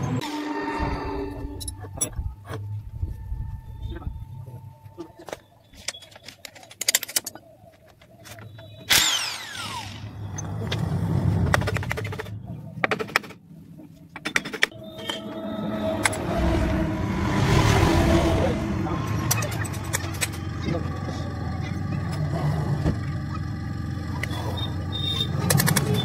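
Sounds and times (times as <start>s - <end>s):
power tool whine: 8.9s - 10.5s.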